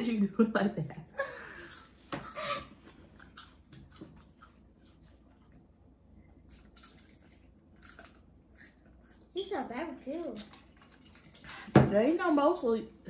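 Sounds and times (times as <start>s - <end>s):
chewing: 3.0s - 5.7s, 6.3s - 9.3s.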